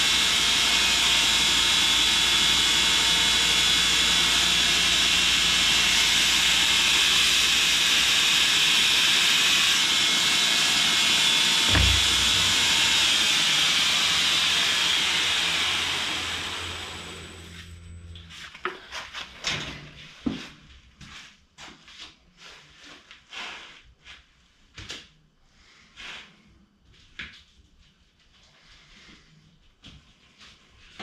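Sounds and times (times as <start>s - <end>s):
belt grinder spinning down: 0.0s - 18.2s.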